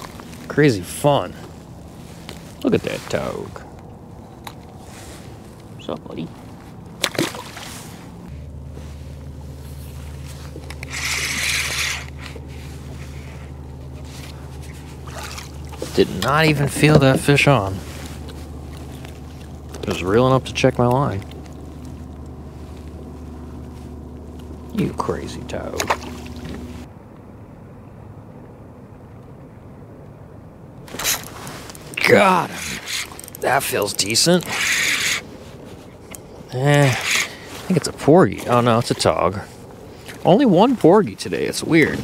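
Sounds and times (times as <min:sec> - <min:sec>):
scraping rustle: 0:00.0 - 0:26.9, 0:30.9 - 0:42.0
wind and water rumble: 0:00.0 - 0:42.0
fishing reel whirring: 0:09.5 - 0:20.7, 0:31.9 - 0:35.3.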